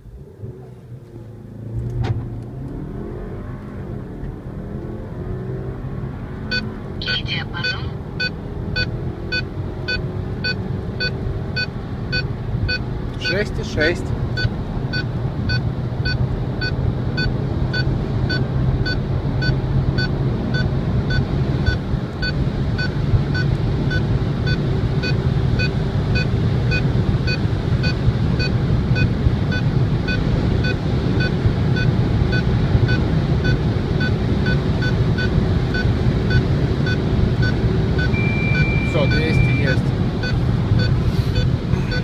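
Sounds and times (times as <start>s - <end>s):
car engine accelerating: 0.0s - 42.0s
electronic beeps: 6.5s - 13.4s, 24.5s - 42.0s.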